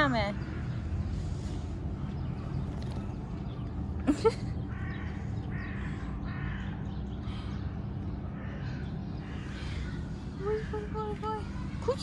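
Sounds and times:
crows cawing: 4.6s - 7.6s, 8.2s - 11.1s.

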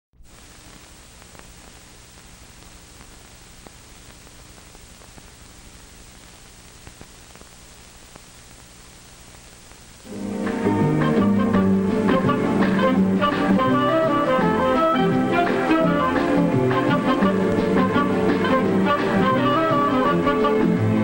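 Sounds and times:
soundtrack hiss: 0.2s - 21.0s
clicks and pops: 6.2s - 8.7s
guitar and strings music: 10.0s - 21.0s.

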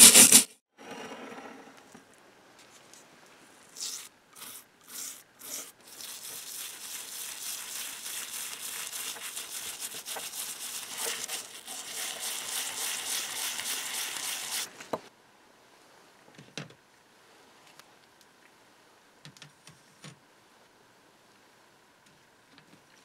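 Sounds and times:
toothbrush scrubbing metal: 3.8s - 14.7s.

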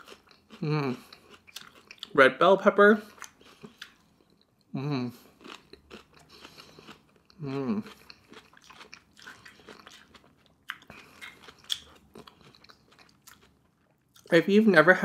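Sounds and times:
crunchy chewing: 0.0s - 2.1s, 5.3s - 14.3s
person humming mm: 0.6s - 1.0s, 4.8s - 5.2s, 7.4s - 7.8s.

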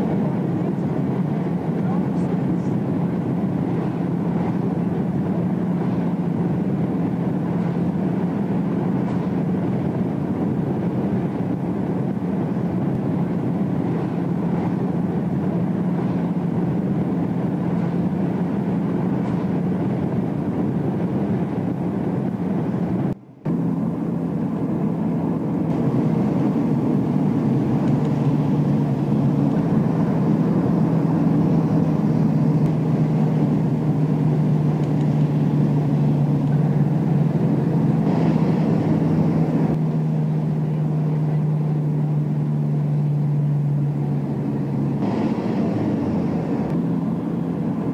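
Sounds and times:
car cabin engine and road noise: 0.0s - 47.9s.

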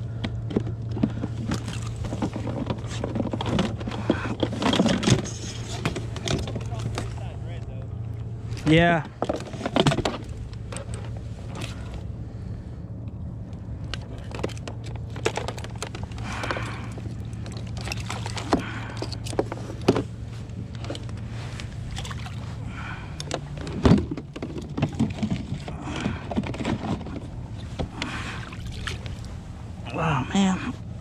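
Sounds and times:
boat motor humming: 0.0s - 31.0s
fishing gear clicks and knocks: 0.1s - 7.4s, 8.2s - 12.1s, 13.5s - 29.3s.

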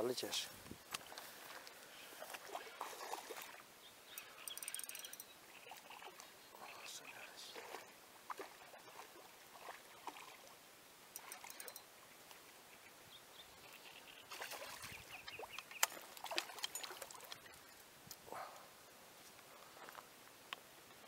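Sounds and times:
fish splashing in water: 2.2s - 3.6s, 7.5s - 10.6s, 14.2s - 17.6s.

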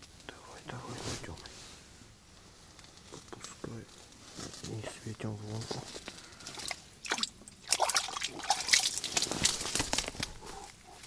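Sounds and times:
water splashing from thrashing fish: 6.5s - 9.8s.

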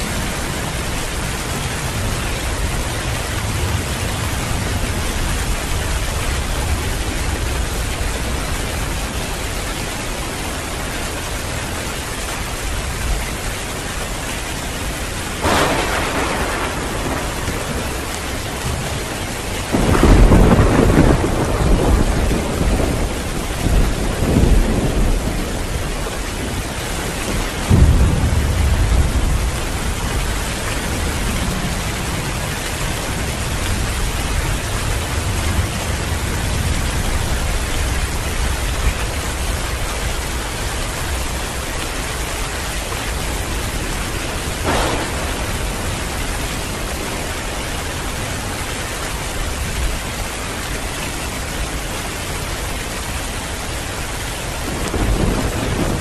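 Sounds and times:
rolling thunder rumble: 0.0s - 13.4s, 14.8s - 50.8s, 52.5s - 56.0s
heavy rain pouring: 0.0s - 56.0s
thunder crack: 15.4s - 25.7s, 27.2s - 31.4s, 44.4s - 47.6s, 54.7s - 56.0s.

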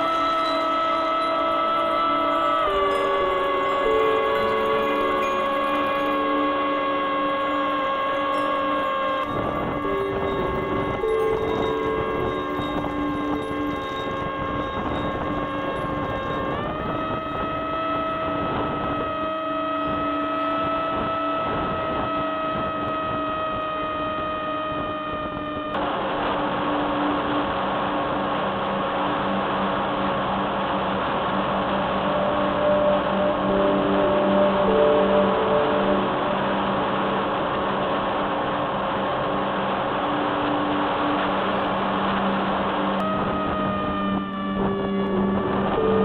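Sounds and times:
electric motor propeller whine: 0.0s - 46.0s
wind rushing on microphone: 9.2s - 26.4s, 42.6s - 46.0s.

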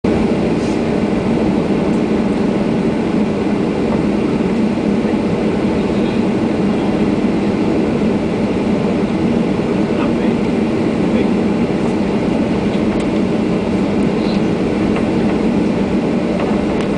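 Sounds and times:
jet engines heard from cabin: 0.0s - 16.9s
rush of air and cabin noise: 0.0s - 16.9s.

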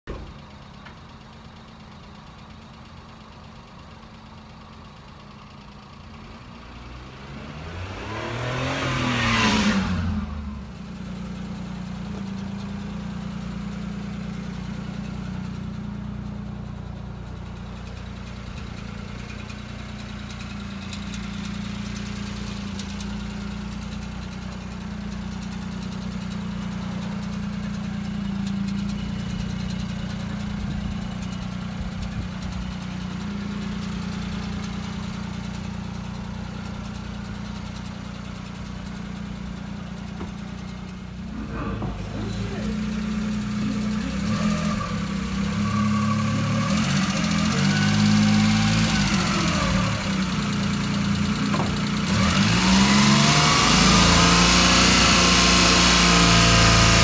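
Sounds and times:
small truck engine idling: 0.0s - 7.3s, 10.2s - 54.4s
engine revving: 6.6s - 13.0s, 39.9s - 57.0s.

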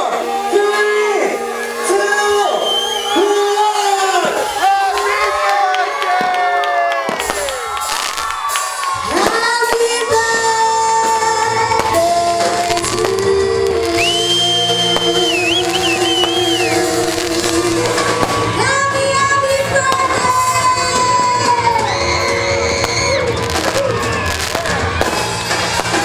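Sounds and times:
song with singing: 9.1s - 24.7s.

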